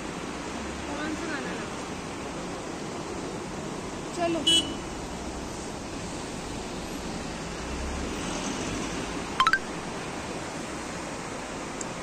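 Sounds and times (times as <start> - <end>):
mountain stream rushing: 0.0 - 12.0.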